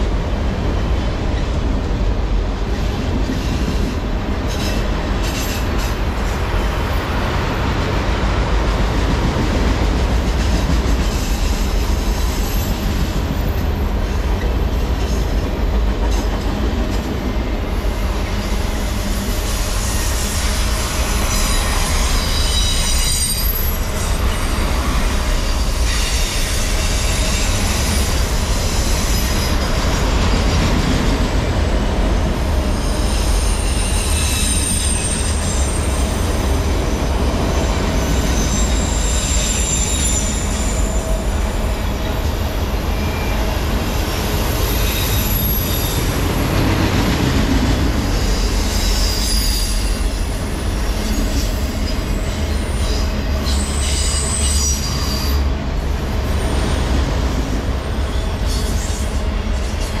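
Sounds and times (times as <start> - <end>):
train wheels rumbling on rails: 0.0 - 60.0
high-pitched wheel squeals: 18.6 - 30.5, 32.7 - 36.4, 37.6 - 41.9, 48.1 - 55.5.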